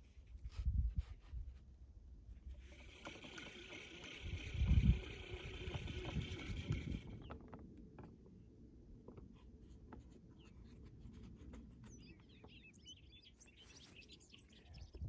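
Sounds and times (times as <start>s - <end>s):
faint low wind rumble: 0.0s - 2.6s
light clicks and scratches: 9.0s - 12.6s
bird chirping: 11.8s - 15.0s.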